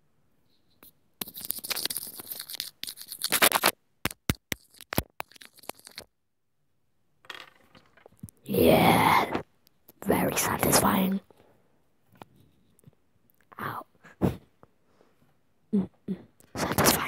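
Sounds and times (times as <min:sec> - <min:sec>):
pencil scraping on microphone: 0:00.8 - 0:03.7, 0:04.5 - 0:06.0, 0:16.6 - 0:17.0.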